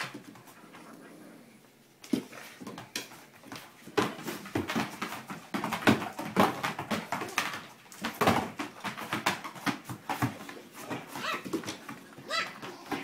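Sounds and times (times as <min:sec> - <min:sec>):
dogs scuffling: 0:00.0 - 0:01.2, 0:02.0 - 0:13.0
dog whining: 0:11.1 - 0:11.6, 0:12.2 - 0:13.0.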